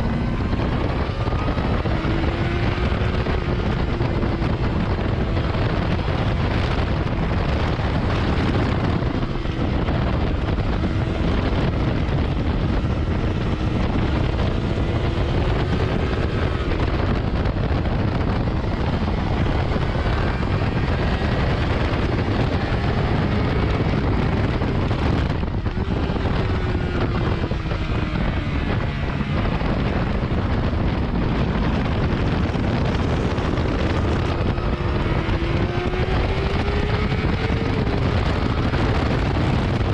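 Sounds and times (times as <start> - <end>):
motorcycle engine revving: 0.0 - 39.9
wind rushing over microphone: 0.0 - 39.9.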